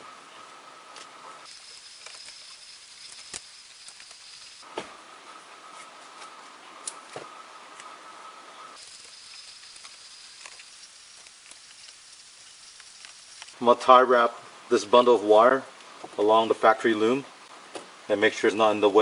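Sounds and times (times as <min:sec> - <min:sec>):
tape crackling rustle: 0:00.9 - 0:04.7, 0:08.8 - 0:13.6.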